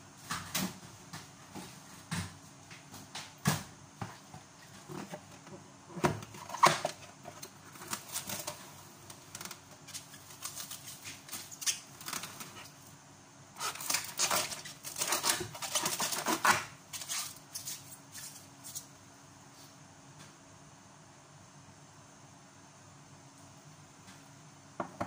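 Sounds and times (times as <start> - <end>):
cling film crinkling: 6.5 - 12.7, 13.6 - 18.8.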